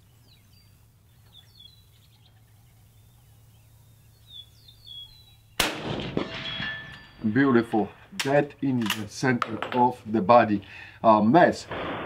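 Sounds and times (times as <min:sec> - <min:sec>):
small birds chirping: 0:00.0 - 0:07.4.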